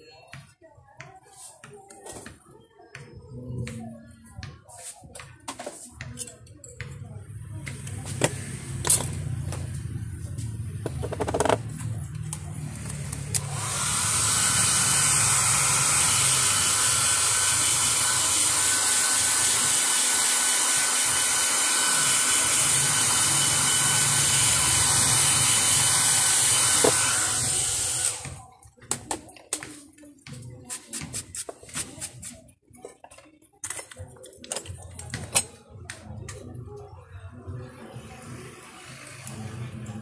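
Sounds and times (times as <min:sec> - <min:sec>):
hand-held blower running: 0:12.8 - 0:28.5.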